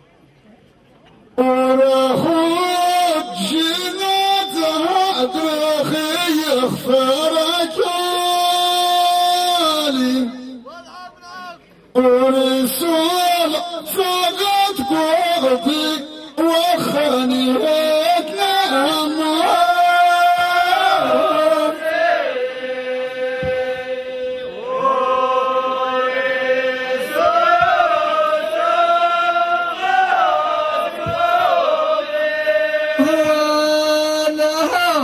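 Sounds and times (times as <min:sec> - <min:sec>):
men singing chant: 0:12.1 - 0:35.0.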